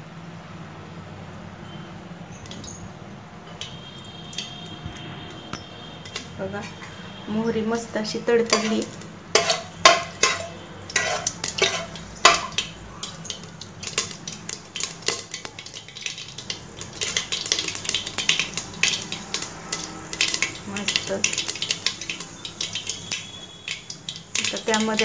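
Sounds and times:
mustard seeds popping in hot oil: 2.4s - 2.8s, 3.5s - 7.0s, 7.8s - 25.0s
metal spoon knocking on pot: 8.5s - 12.7s.

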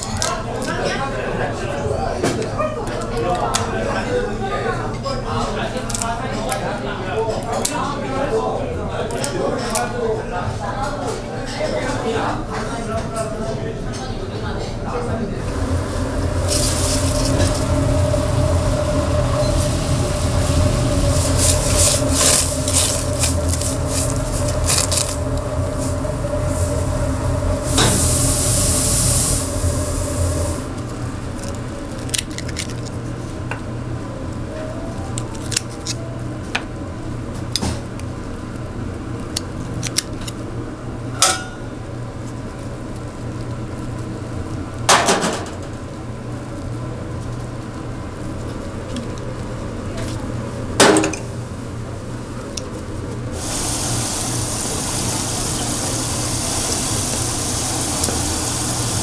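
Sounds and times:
steady low hum: 14.7s - 44.8s
utensils and dishes clinking: 41.2s - 41.7s.

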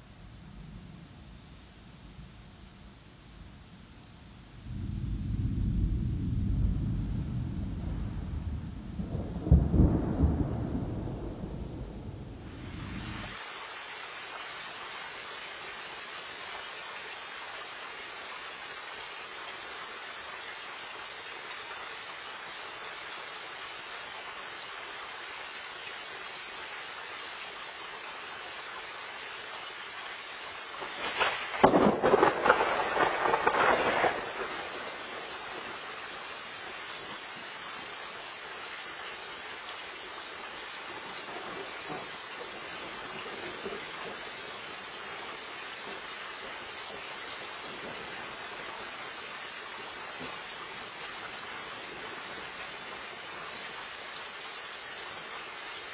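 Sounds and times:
steady rain falling: 0.0s - 55.9s
crackling thunderclap: 4.5s - 13.4s, 30.8s - 35.9s.

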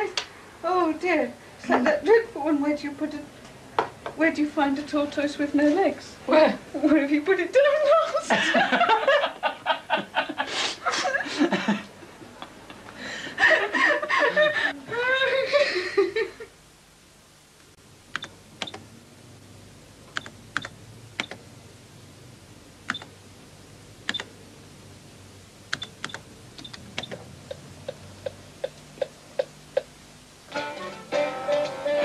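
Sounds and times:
people laughing: 8.2s - 16.5s
computer keystrokes clicking: 18.1s - 18.8s, 20.1s - 21.4s, 22.9s - 23.1s, 24.1s - 24.3s, 25.7s - 27.2s.

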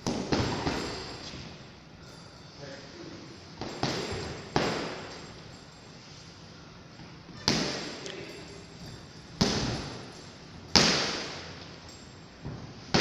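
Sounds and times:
gloves punching heavy bag: 0.0s - 1.1s, 3.6s - 5.1s, 9.4s - 10.0s, 10.7s - 11.4s.

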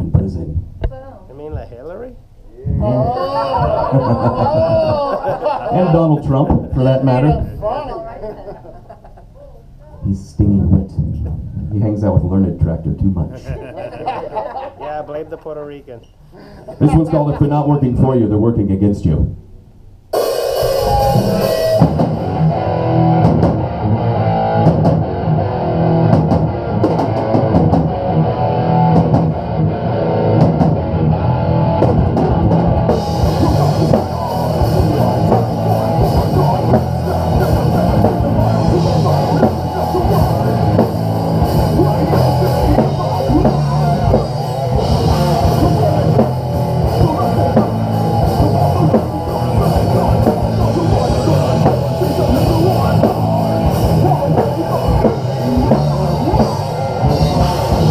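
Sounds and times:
bass guitar: 0.0s - 8.4s, 9.4s - 13.6s, 16.2s - 57.9s
cymbals: 20.1s - 23.2s
drum kit: 20.1s - 57.9s
distorted electric guitar: 20.2s - 57.9s.

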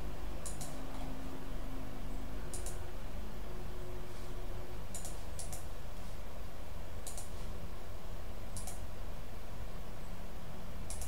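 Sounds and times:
steady low hum: 0.0s - 11.0s
computer mouse clicking: 0.4s - 1.1s, 2.5s - 2.8s, 4.9s - 5.7s, 7.0s - 7.3s, 8.5s - 8.8s.

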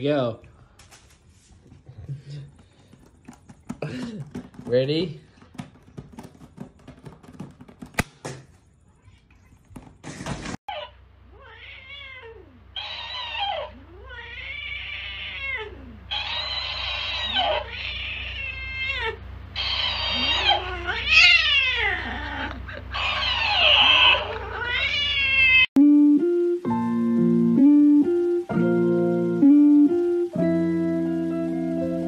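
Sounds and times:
cat yowling: 10.7s - 25.7s.

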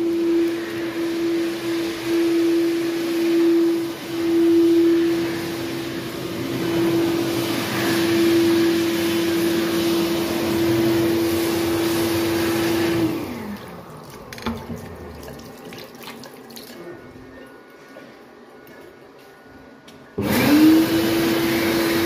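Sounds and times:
electric hand dryer blowing: 0.0s - 15.1s, 20.2s - 22.0s
water running into basin: 11.4s - 17.1s.

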